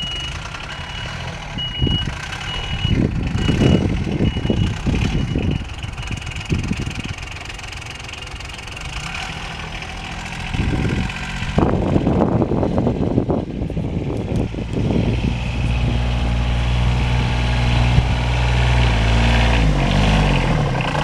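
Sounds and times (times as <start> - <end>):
utility vehicle engine running: 0.0 - 21.0.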